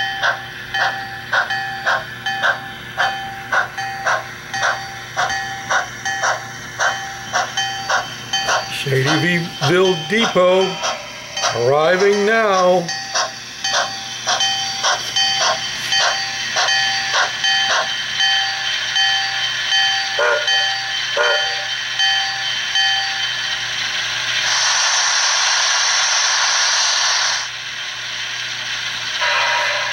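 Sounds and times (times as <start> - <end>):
locomotive bell ringing: 0.0 - 24.1
train whistle toots: 21.2 - 21.7, 29.2 - 29.9
steam hiss: 24.3 - 29.9.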